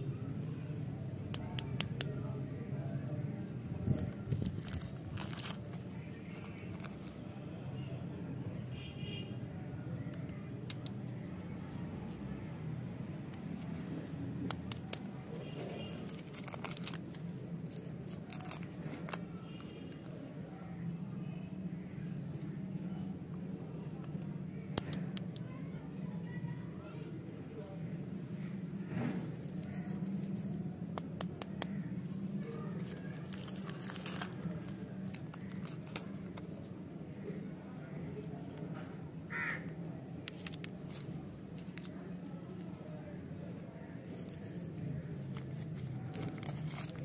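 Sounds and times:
foil wrapper crinkling and tearing: 0:03.7 - 0:07.2, 0:14.5 - 0:20.0, 0:31.0 - 0:36.7, 0:44.1 - 0:47.0.

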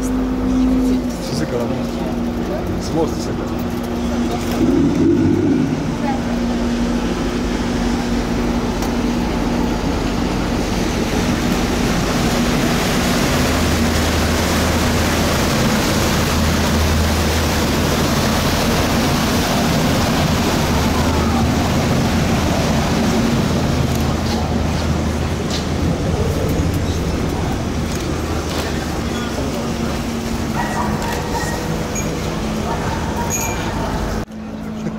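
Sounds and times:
water rushing: 0:00.0 - 0:34.3
boat diesel engine humming: 0:00.0 - 0:34.9.

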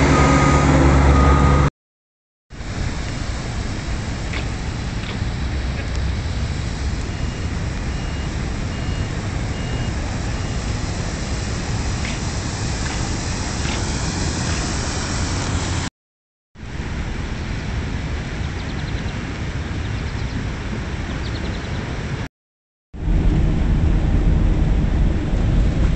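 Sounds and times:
wind buffeting microphone: 0:23.0 - 0:25.9.

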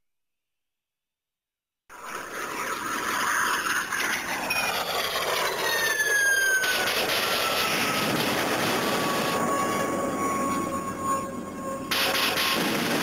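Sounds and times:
high whistling tones sliding down: 0:02.0 - 0:12.6
loud rushing hiss: 0:11.9 - 0:13.0.

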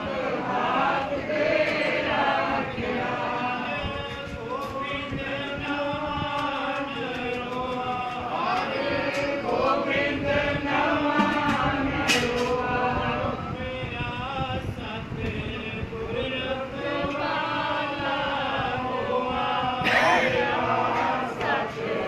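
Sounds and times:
group of voices chanting: 0:16.5 - 0:22.0.

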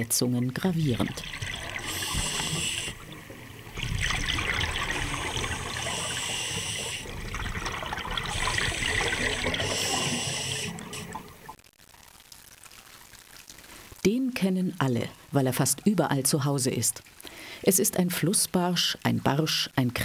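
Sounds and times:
underwater bubbling and hissing: 0:00.8 - 0:11.6.

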